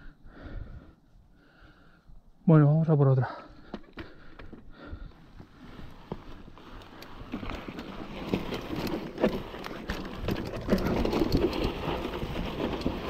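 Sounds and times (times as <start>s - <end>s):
bike tyres crunching over gravel: 5.2s - 13.0s
bike knocks and rattles: 7.2s - 13.0s.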